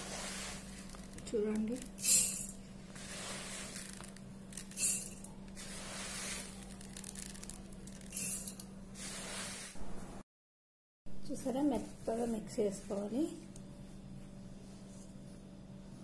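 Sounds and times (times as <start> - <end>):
grains poured into steel jar: 2.0 - 8.6.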